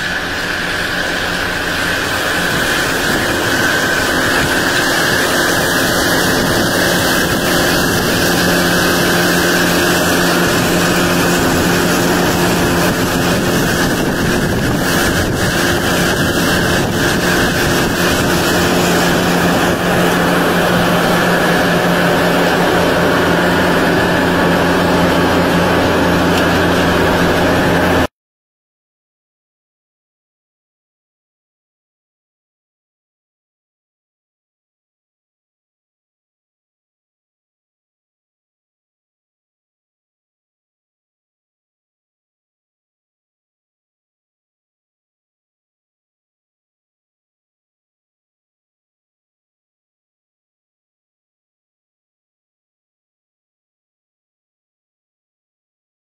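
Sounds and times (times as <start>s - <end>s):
mower whirring: 0.0s - 28.1s
tractor diesel engine running: 0.0s - 28.1s.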